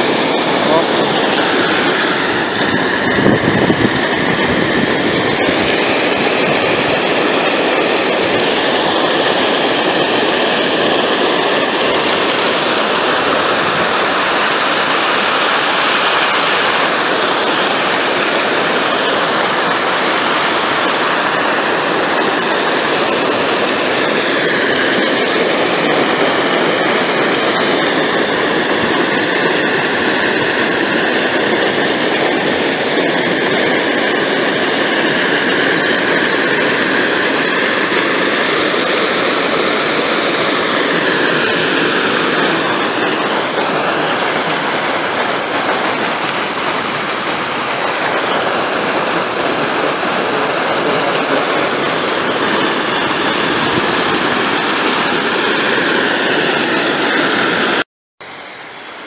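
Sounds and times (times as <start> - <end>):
water rushing over a spillway: 0.0 - 59.0.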